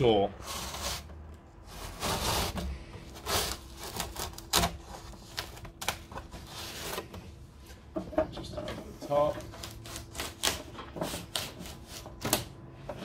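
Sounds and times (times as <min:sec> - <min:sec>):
putty knife scraping: 0:00.4 - 0:07.2.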